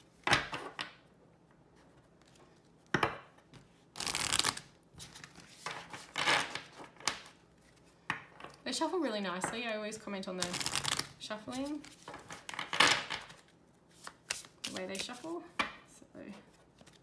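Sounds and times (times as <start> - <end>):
cards being shuffled: 4.0 - 7.8, 10.4 - 15.4, 16.5 - 17.0.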